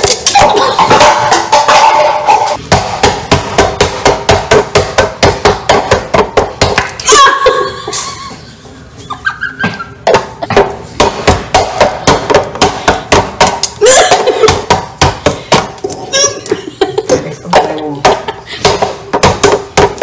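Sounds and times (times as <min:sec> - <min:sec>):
woman shouting: 0:07.0 - 0:07.8, 0:13.8 - 0:14.3.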